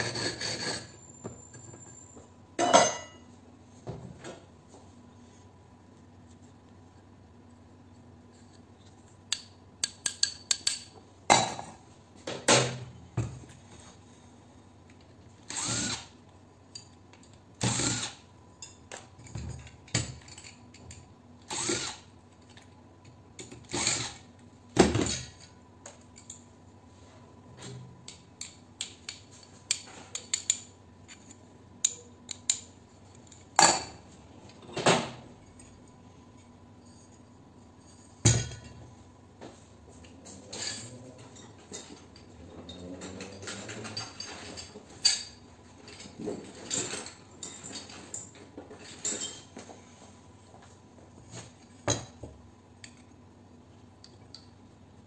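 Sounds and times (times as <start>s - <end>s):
cordless drill whirring: 15.5s - 16.1s, 17.6s - 18.2s, 21.5s - 22.1s, 23.7s - 24.2s.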